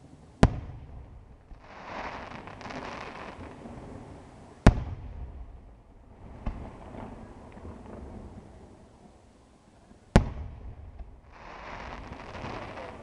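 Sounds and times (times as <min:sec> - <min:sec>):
crackling hiss: 0:00.0 - 0:13.0
firework bursts: 0:00.4 - 0:05.6, 0:10.2 - 0:13.0.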